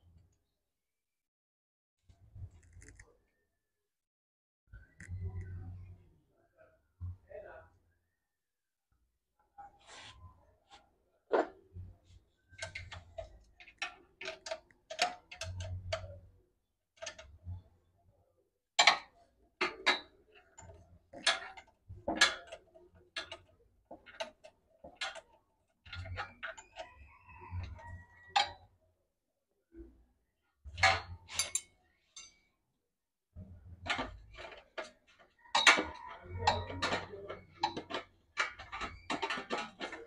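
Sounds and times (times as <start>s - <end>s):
metal tools clinking on metal: 30.8s - 32.5s, 33.9s - 40.0s.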